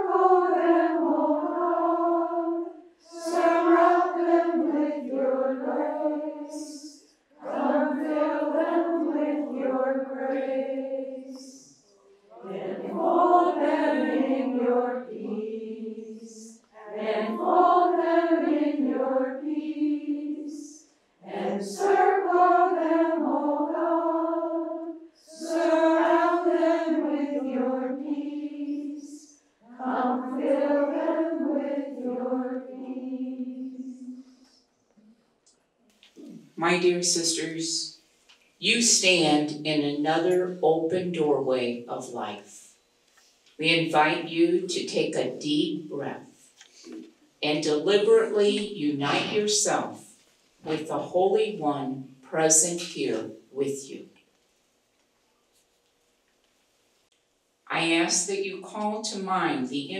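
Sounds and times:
women singing in unison: 0.0 - 34.3.

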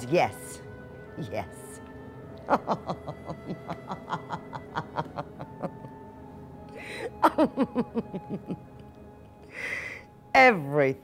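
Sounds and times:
woman laughing: 2.4 - 6.1, 6.8 - 8.7
sharp breath: 9.5 - 10.1.

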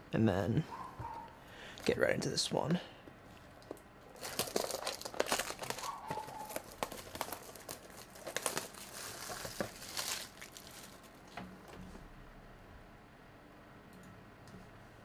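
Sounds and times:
plastic wrap crinkling: 3.6 - 11.3.

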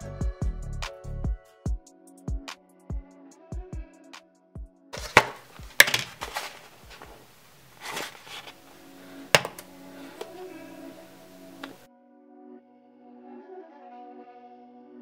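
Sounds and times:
faint background music: 0.0 - 15.0
tray and cup knocking on counter: 5.0 - 6.3, 9.4 - 9.6.

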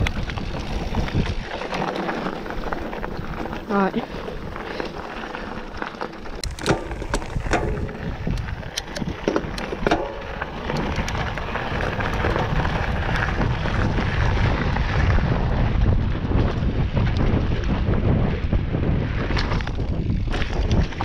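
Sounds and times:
tyres crunching on gravel: 0.0 - 15.6
bike clicking and rattling: 0.0 - 21.0
wind buffeting microphone: 0.0 - 21.0.

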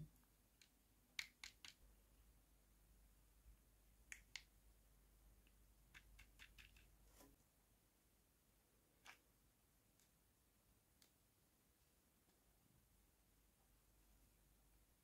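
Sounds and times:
plastic toy clicks: 0.6 - 1.8.

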